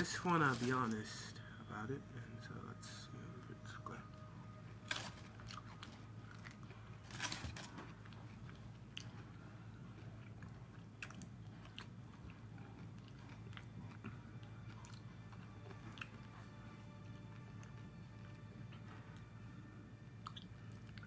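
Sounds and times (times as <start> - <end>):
chewing clicks: 10.0 - 16.6, 20.2 - 21.0.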